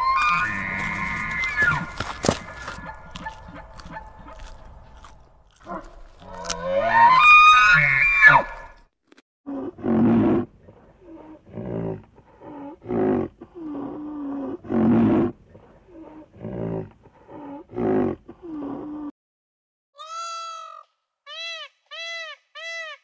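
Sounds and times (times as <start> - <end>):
large animal deep calls: 0.0 - 8.8.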